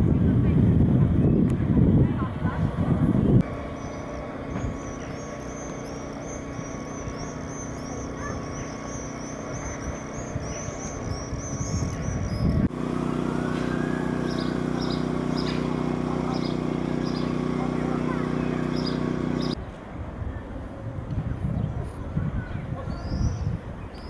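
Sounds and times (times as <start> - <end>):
low engine hum: 0.0 - 24.0
songbird twittering: 3.6 - 12.7, 13.5 - 17.4, 18.0 - 19.6, 22.4 - 24.0.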